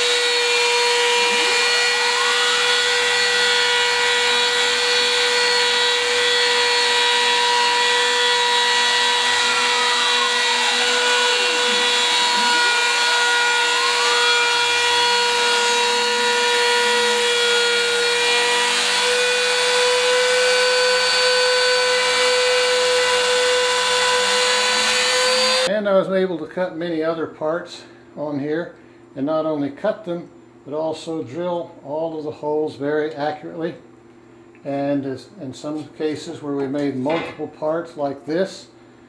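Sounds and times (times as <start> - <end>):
router motor high whine: 0.0 - 25.7.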